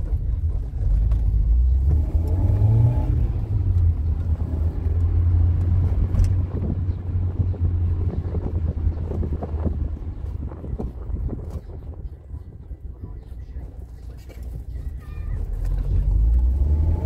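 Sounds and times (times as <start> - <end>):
car driving rumble: 0.0 - 17.0.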